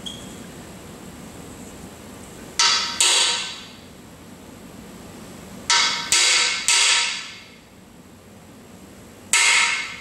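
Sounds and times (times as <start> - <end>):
hammer striking metal: 2.6 - 3.7, 5.7 - 7.6, 9.3 - 10.0.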